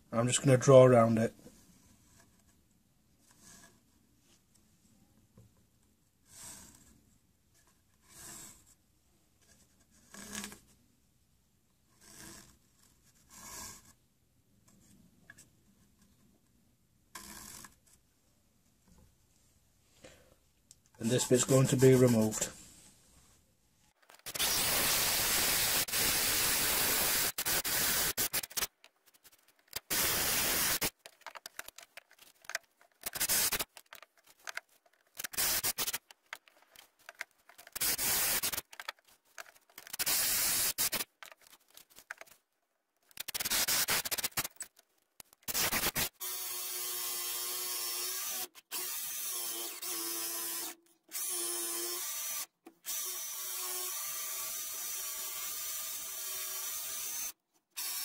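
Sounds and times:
power drill boring into wood: 24.2 - 28.7, 29.8 - 30.9, 33.0 - 33.7, 35.2 - 36.0, 37.7 - 38.7, 39.8 - 41.1, 43.2 - 44.5, 45.5 - 58.0
jigsaw cutting with motor whine: 24.3 - 28.7, 29.8 - 30.9, 35.2 - 36.0, 39.9 - 41.0, 45.5 - 58.0.

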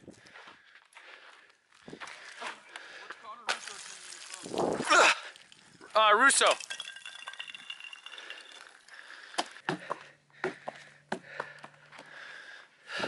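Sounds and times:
footsteps on ice: 0.2 - 5.9
ice clicking and snapping: 3.5 - 9.0.

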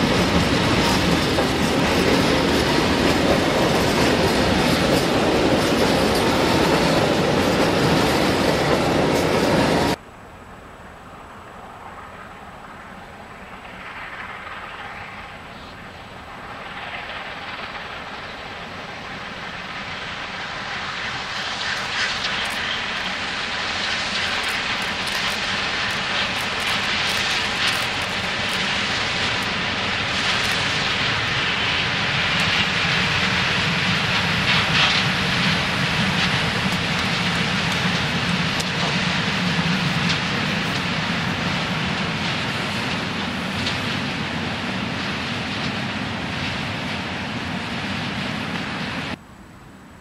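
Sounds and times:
rumble of freight wagons: 0.0 - 10.0, 10.9 - 49.2
steam locomotive exhaust: 11.8 - 49.2.

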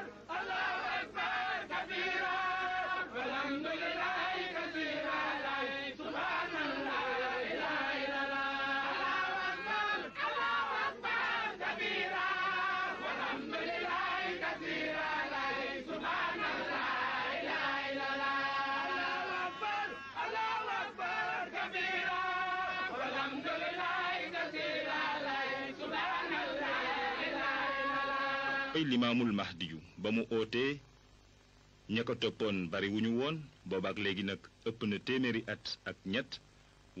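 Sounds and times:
men chanting together: 0.0 - 28.8.

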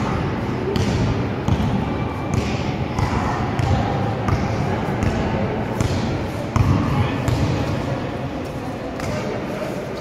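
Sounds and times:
basketball bouncing on concrete: 0.7 - 7.6.

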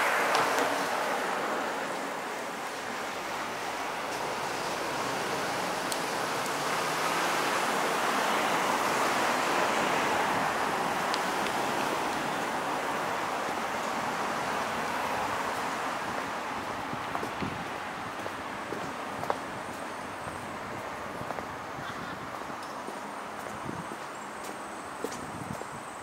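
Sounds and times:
traffic tyre noise: 0.0 - 26.0.

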